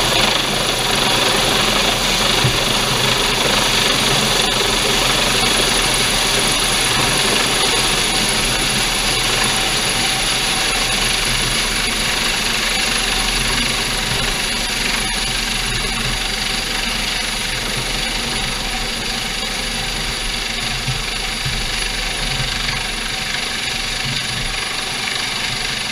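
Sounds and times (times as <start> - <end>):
helicopter rotor noise: 0.0 - 25.9
high turbine whine: 0.0 - 25.9.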